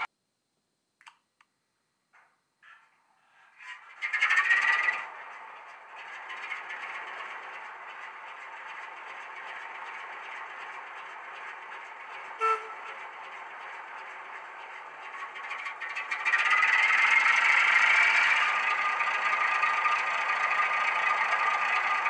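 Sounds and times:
diesel engine idling and revving: 0:04.1 - 0:22.0
short horn pip: 0:12.3 - 0:13.1.

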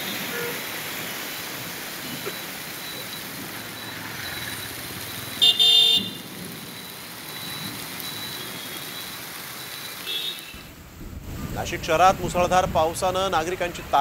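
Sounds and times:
car tyres on wet road: 0:00.0 - 0:14.0
heavy rain hiss: 0:00.0 - 0:14.0
car horn honking: 0:05.4 - 0:06.2, 0:10.0 - 0:10.7.

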